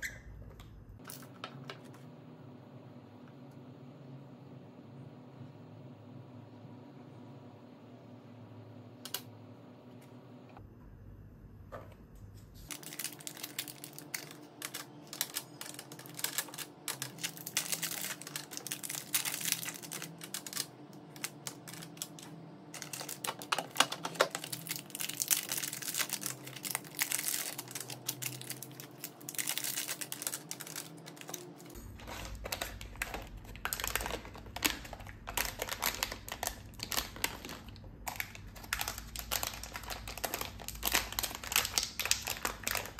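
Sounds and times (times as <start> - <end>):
plastic bags crinkling: 12.7 - 42.9.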